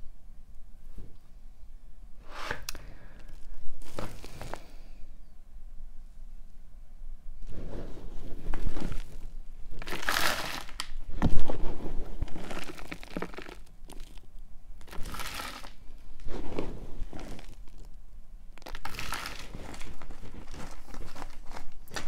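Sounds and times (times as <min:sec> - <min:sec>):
hands rustling potting soil: 0:02.5 - 0:05.0, 0:07.4 - 0:22.0.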